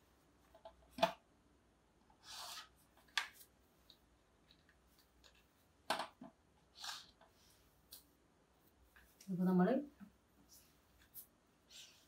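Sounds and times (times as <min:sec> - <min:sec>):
scratchy marker stroke: 0:02.2 - 0:02.9.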